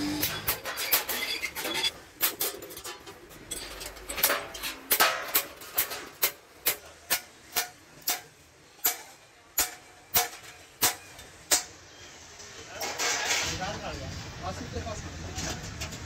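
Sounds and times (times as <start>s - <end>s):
hammer striking sheet metal: 4.2s - 11.8s.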